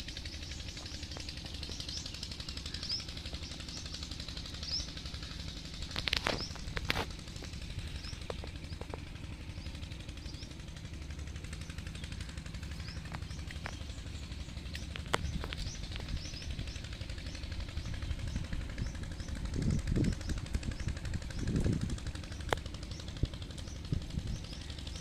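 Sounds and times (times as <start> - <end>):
small birds chirping: 0.0 - 25.0
sharp clicks: 5.8 - 9.0.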